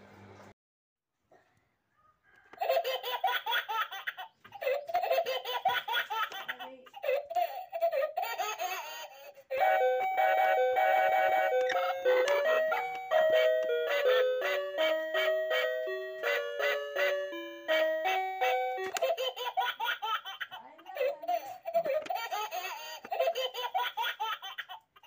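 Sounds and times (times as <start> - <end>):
chiming melody music: 9.6 - 19.0.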